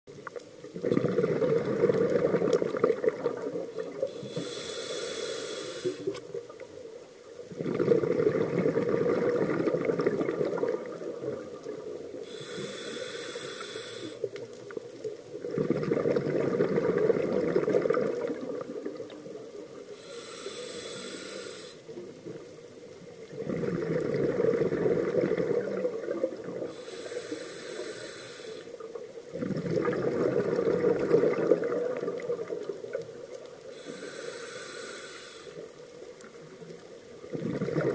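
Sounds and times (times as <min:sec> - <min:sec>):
exhaled air bubbling: 0:00.3 - 0:06.7, 0:07.4 - 0:37.9
regulator hiss on inhale: 0:03.8 - 0:06.4, 0:12.0 - 0:14.9, 0:19.7 - 0:22.2, 0:26.4 - 0:29.2, 0:33.4 - 0:36.3.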